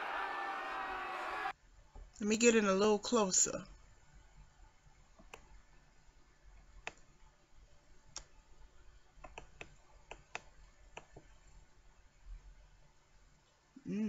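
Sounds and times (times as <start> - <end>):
faint irregular clicks: 5.2 - 5.6, 6.7 - 7.1, 8.1 - 8.3, 9.2 - 11.4.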